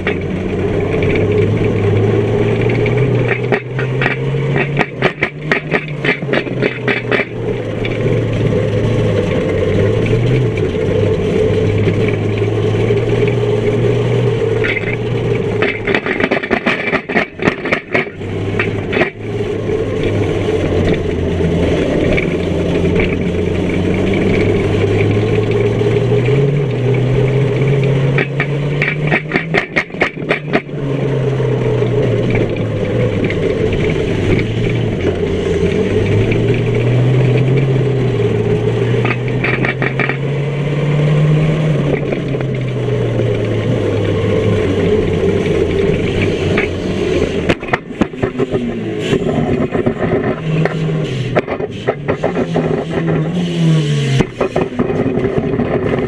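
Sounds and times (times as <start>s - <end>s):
rapid clattering: 0.0s - 40.4s
car engine revving: 0.0s - 56.0s.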